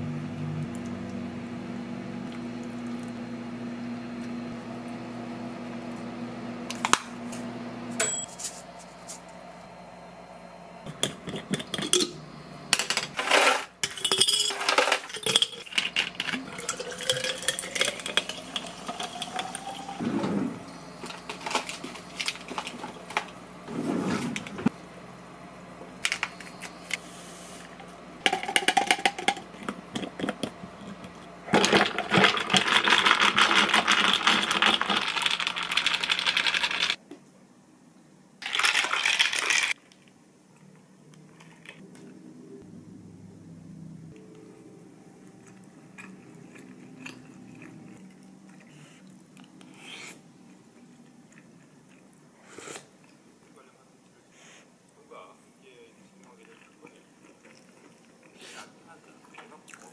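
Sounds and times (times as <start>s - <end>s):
ice cubes clinking in bottle: 12.8s - 20.0s, 38.4s - 39.7s.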